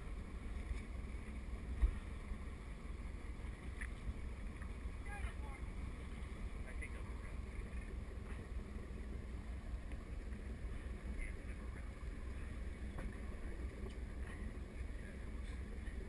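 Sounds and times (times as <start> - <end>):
faint ticks: 3.7 - 4.7.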